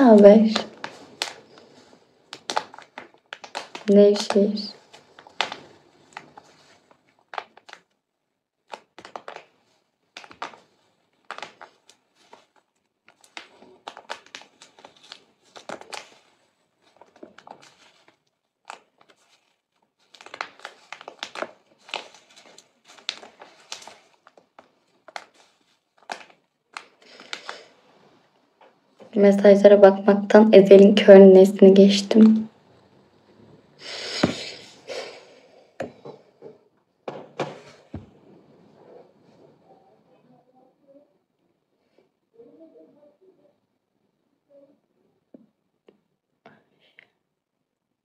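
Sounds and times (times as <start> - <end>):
soft crackling and clicking: 0.0 - 8.0, 8.6 - 29.2.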